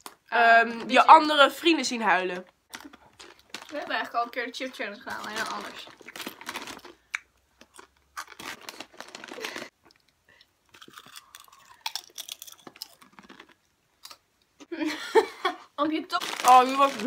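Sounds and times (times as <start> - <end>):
chip bag crinkling: 2.7 - 9.8, 10.7 - 14.2, 16.0 - 17.0
chips crunching: 2.7 - 10.0, 10.7 - 14.2, 16.1 - 17.0.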